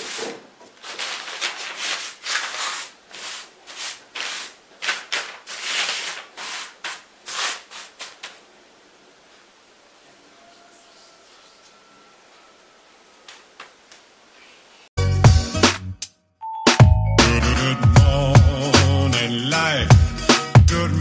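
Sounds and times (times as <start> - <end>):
hand sweeping flour across newspaper: 0.0 - 8.5.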